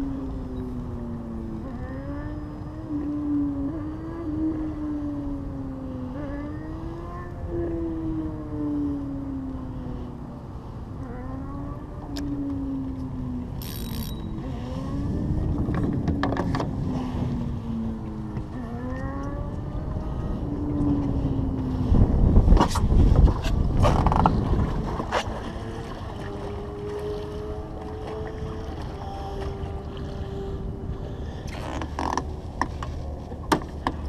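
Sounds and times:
wind and water rumble: 0:00.0 - 0:34.0
boat motor running: 0:10.9 - 0:34.0.

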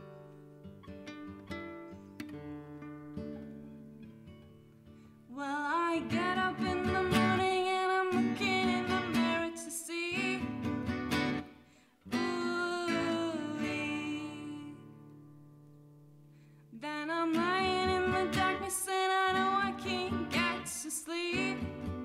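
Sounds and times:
acoustic guitars: 0:00.0 - 0:22.0
woman singing: 0:05.3 - 0:11.0, 0:12.1 - 0:15.1, 0:16.7 - 0:22.0.

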